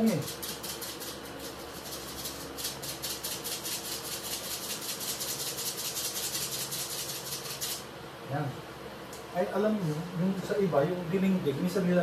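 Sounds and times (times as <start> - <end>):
granules rattling in shaker bottle: 0.0 - 7.8.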